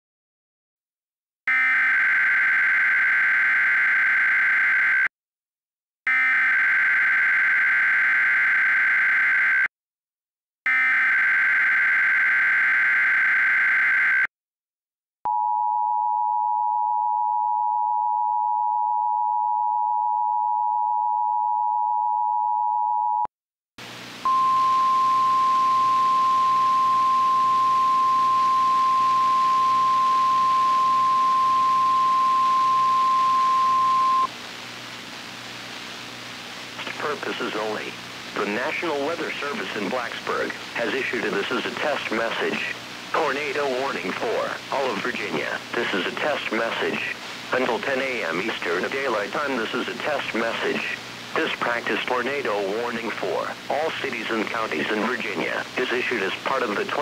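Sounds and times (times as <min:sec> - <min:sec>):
steady alarm tone: 0:01.5 - 0:05.1, 0:06.1 - 0:09.7, 0:10.7 - 0:14.3, 0:24.3 - 0:34.3
two-tone attention signal: 0:24.3 - 0:34.3
radio static: 0:28.9 - 0:57.0.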